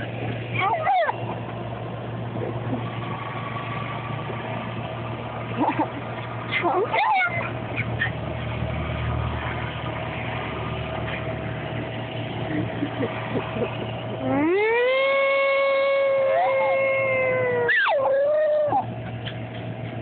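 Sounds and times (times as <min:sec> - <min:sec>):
dog howling: 0:00.6 - 0:01.2, 0:14.3 - 0:18.9
distant siren: 0:13.8 - 0:19.2.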